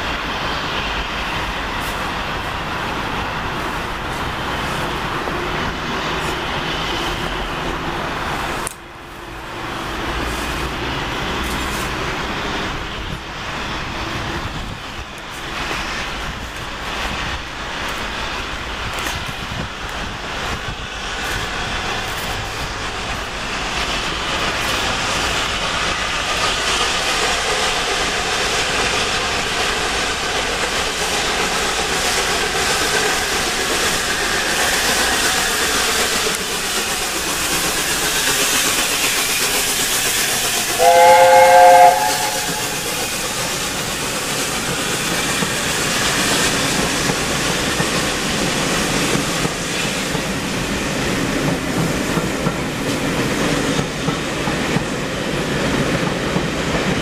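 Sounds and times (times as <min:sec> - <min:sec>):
steam locomotive exhaust and coaches: 0:00.0 - 0:57.0.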